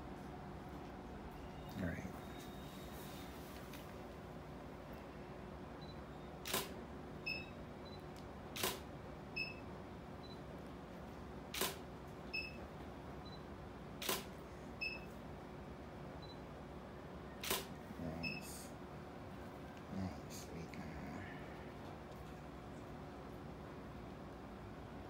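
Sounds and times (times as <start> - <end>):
camera shutter click: 6.4 - 6.8, 8.6 - 8.9, 11.5 - 11.8, 14.0 - 14.4, 17.4 - 17.7.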